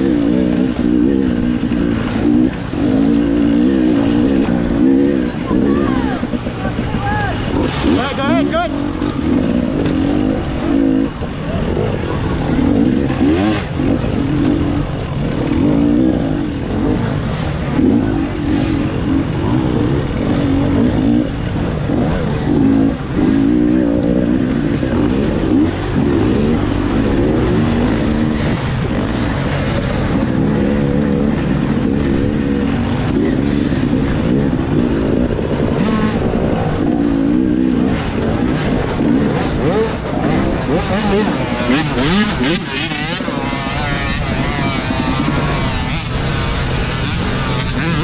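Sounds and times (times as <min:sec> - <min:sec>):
dirt bike engine revving: 0:00.0 - 0:48.0.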